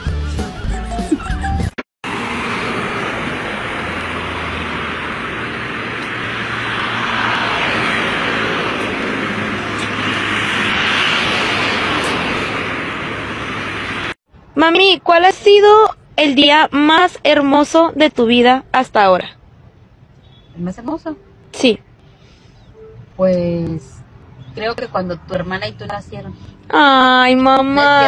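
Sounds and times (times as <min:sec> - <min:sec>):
cars passing on a street: 0:01.1 - 0:28.0.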